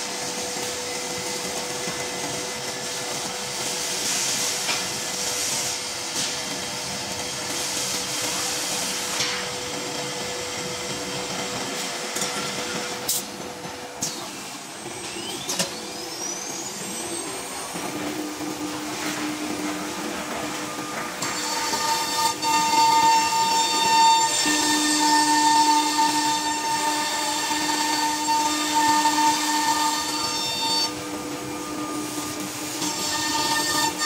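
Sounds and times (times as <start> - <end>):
wood router whirring: 0.0 - 34.0
rising whine: 14.2 - 21.4.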